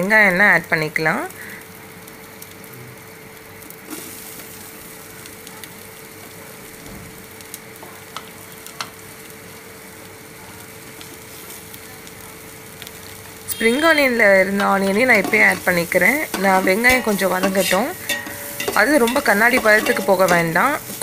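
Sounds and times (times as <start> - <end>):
onions sizzling in hot oil: 0.0 - 21.0.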